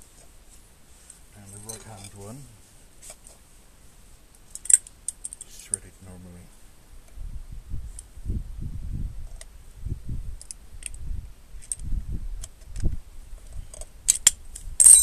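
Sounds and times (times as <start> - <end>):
small metallic clicks: 4.5 - 5.8
sharp metal clinks: 14.8 - 15.0.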